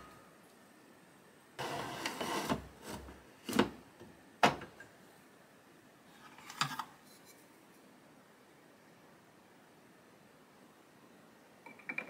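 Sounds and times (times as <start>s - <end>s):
drip tray scraping as it slides: 1.6s - 3.1s.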